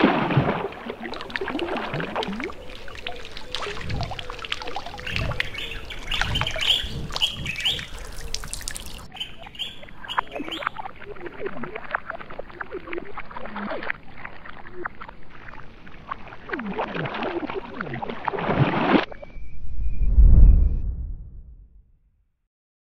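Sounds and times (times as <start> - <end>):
water splashing: 0.0 - 19.2
birds chirping: 2.2 - 10.8.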